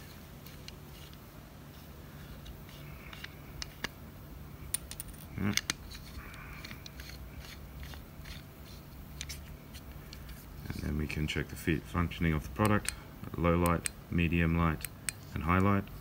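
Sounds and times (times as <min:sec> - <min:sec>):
flashlight cap clicks and scrapes: 0:02.4 - 0:04.0.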